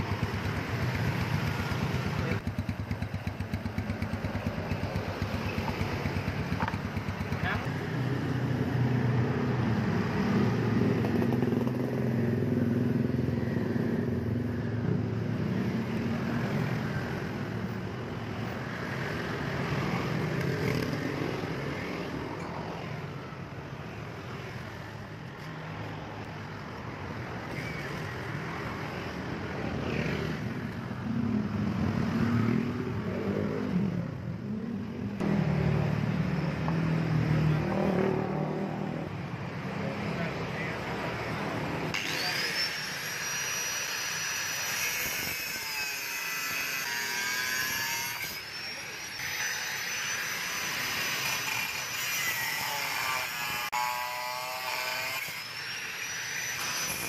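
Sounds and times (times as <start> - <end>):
passing road vehicles: 0.0 - 45.4.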